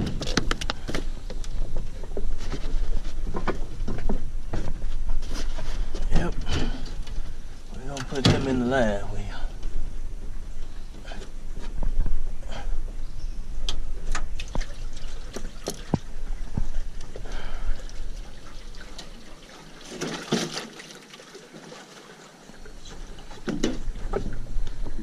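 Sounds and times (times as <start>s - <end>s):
water trickling and splashing: 14.0s - 25.0s.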